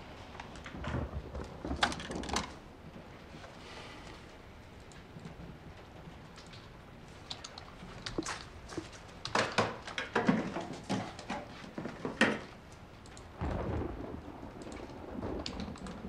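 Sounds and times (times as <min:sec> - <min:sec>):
thunder cracks and rumble: 0:00.0 - 0:03.2, 0:13.3 - 0:16.0
rain: 0:00.0 - 0:16.0.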